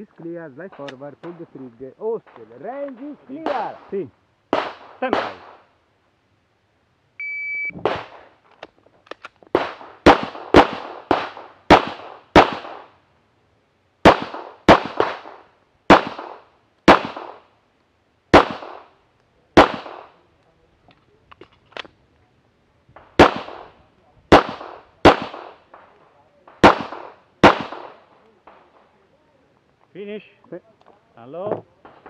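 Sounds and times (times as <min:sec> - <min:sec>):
pistol shots: 0:03.3 - 0:03.9, 0:04.5 - 0:05.7, 0:09.5 - 0:13.0, 0:14.0 - 0:17.5, 0:18.3 - 0:19.0, 0:19.6 - 0:20.2, 0:23.0 - 0:28.6
shot timer beep: 0:07.2 - 0:07.8.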